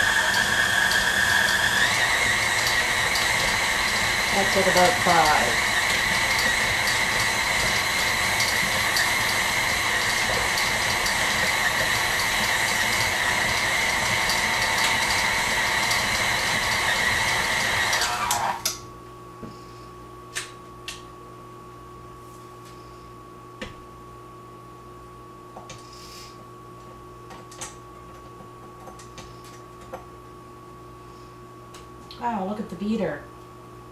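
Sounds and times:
stand mixer motor whining: 0:00.0 - 0:18.8.

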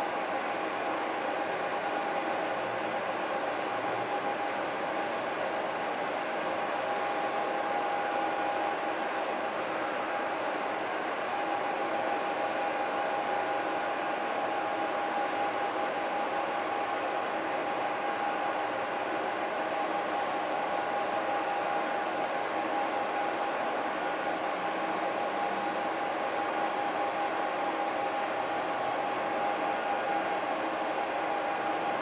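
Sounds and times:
mechanical hum with whine: 0:00.0 - 0:32.0.

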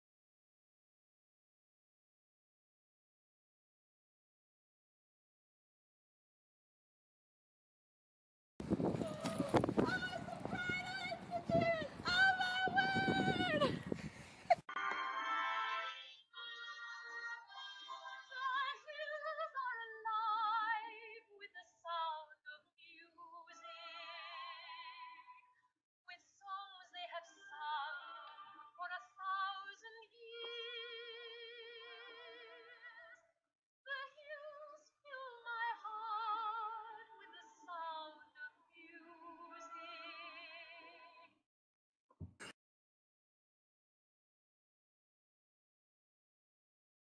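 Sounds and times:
woman singing with vibrato: 0:08.9 - 0:13.9, 0:15.3 - 0:25.4, 0:26.4 - 0:33.2, 0:33.9 - 0:41.2.

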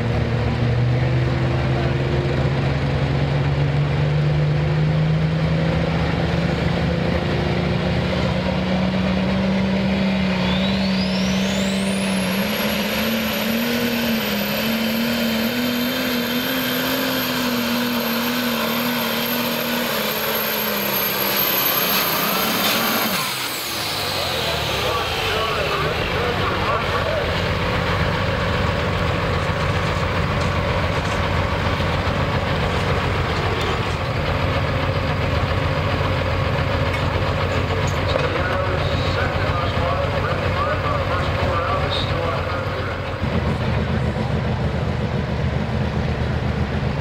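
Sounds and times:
diesel engine at full power: 0:00.0 - 0:47.0
high turbocharger whine: 0:00.0 - 0:47.0.

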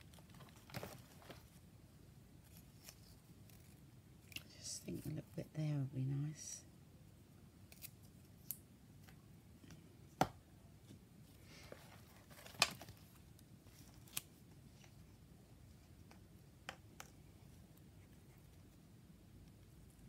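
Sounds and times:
paper rustling: 0:00.0 - 0:01.6, 0:11.6 - 0:14.9.

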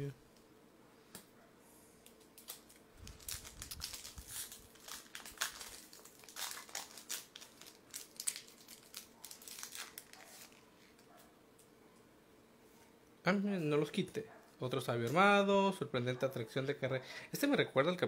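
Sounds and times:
foil wrapper crinkling and tearing: 0:02.2 - 0:10.7.

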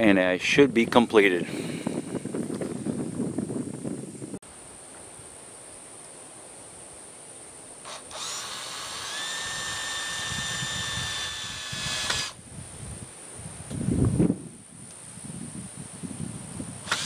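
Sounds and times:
cordless drill driving a screw: 0:07.8 - 0:12.4.

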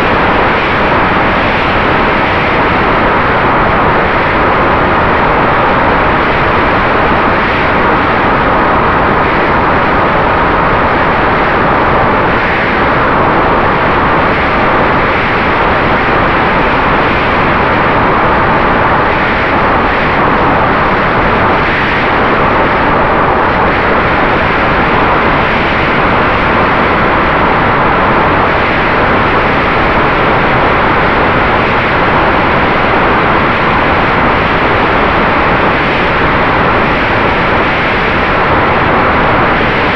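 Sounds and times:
wind rushing over camera: 0:00.0 - 0:39.9.

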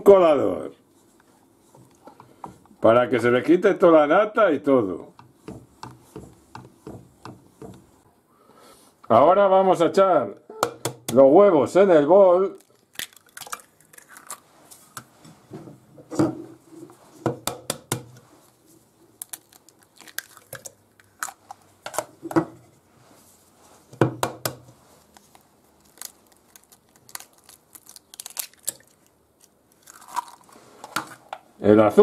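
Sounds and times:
eggshells cracking: 0:12.5 - 0:14.4, 0:19.2 - 0:21.6, 0:25.2 - 0:30.6.

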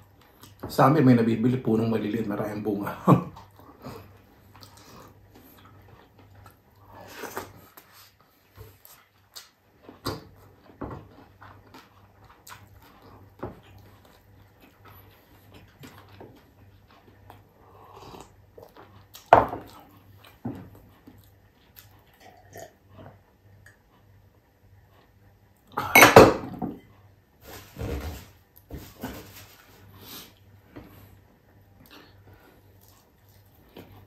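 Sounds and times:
person chewing: 0:03.4 - 0:23.8, 0:31.8 - 0:34.0.

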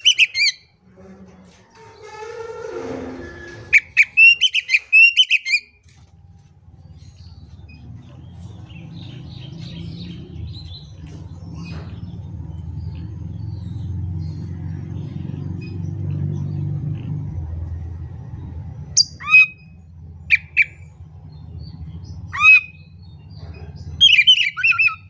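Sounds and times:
magpie-robin whistled song: 0:00.0 - 0:00.6, 0:03.7 - 0:05.8, 0:19.0 - 0:21.0, 0:22.3 - 0:23.0, 0:24.0 - 0:25.0
low rumble: 0:05.8 - 0:24.0.

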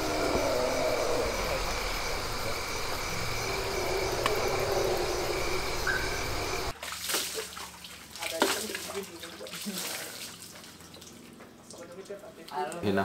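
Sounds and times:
continuous low rumble: 0:00.0 - 0:06.7
crickets and insects chirping: 0:00.0 - 0:06.8.

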